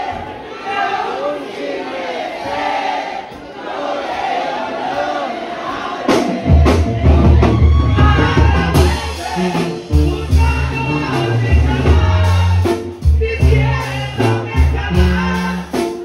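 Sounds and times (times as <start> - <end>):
crowd voices: 0.0 - 16.0.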